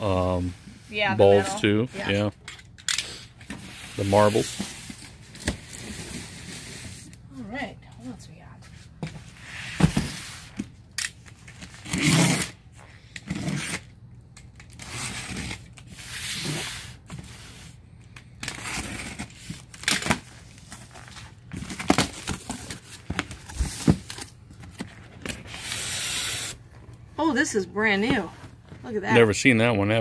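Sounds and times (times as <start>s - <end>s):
box cutter slitting tape: 10.1s - 17.6s, 18.4s - 20.3s, 25.2s - 26.6s
cardboard tearing and scraping: 11.5s - 12.6s, 13.2s - 13.9s, 14.7s - 17.8s, 18.4s - 26.6s.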